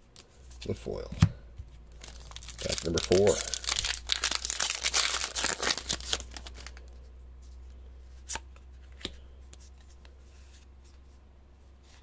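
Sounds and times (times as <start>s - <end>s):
foil wrapper crinkling and tearing: 1.9s - 6.8s.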